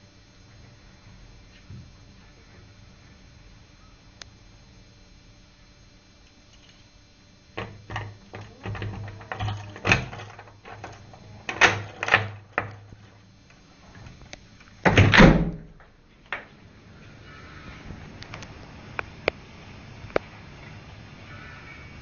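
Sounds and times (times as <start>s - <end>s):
phone handling thumps: 7.6s - 13.0s
cats fighting: 7.6s - 13.1s.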